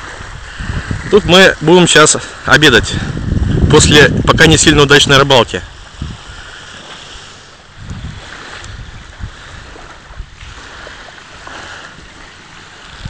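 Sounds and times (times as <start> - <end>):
wind blowing across microphone: 0.0 - 13.0.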